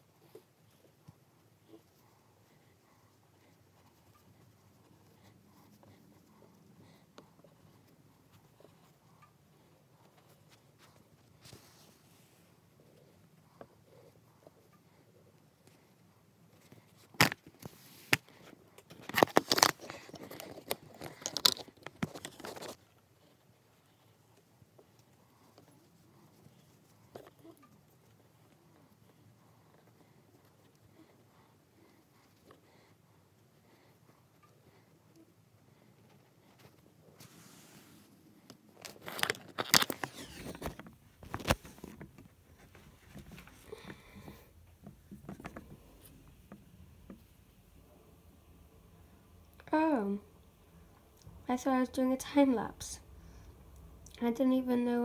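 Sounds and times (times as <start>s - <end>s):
rustling: 0.0s - 51.4s
handling clicks and rustles: 16.6s - 23.8s, 38.4s - 47.8s.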